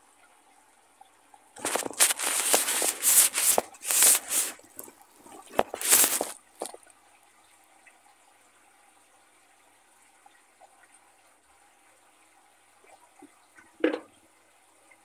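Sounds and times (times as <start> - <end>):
liquid splashing in plastic bottle: 1.6 - 6.9.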